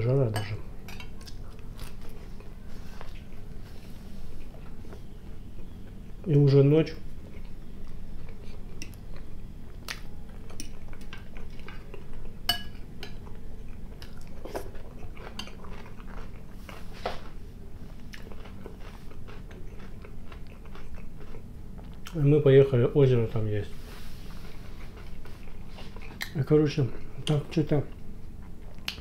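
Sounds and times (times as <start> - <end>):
fork clinking and scraping dishes: 12.5 - 13.2
close-up chewing: 13.1 - 22.2, 24.2 - 29.0.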